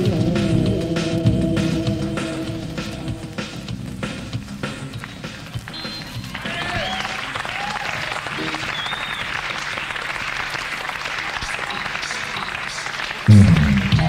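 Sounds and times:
crowd applauding and cheering: 4.3s - 14.0s
short whistle: 5.7s - 7.3s, 8.4s - 9.4s.

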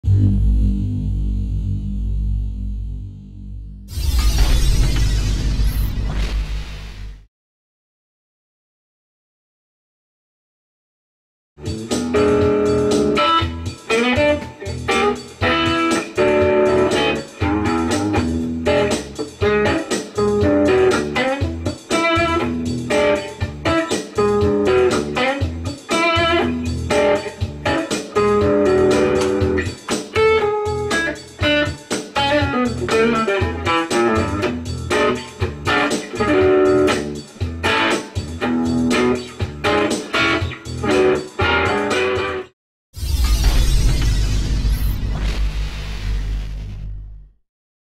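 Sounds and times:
electric guitar notes and chords: 0.0s - 3.9s, 11.6s - 42.5s.

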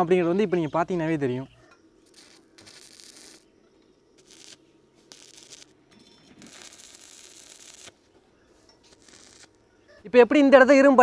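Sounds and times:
arc welding crackling hiss: 2.0s - 9.8s.

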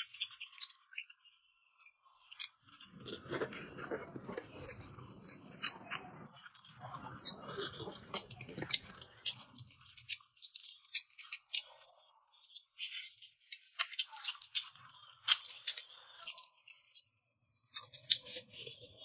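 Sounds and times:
chewing close to microphone: 0.0s - 19.0s
shrimp shell peeling crackles: 7.5s - 17.0s, 17.6s - 19.0s.

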